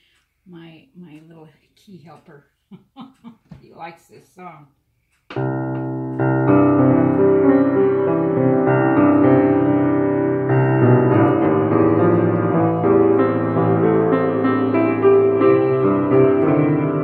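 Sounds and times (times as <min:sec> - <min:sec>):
slow piano piece: 0:05.3 - 0:17.0.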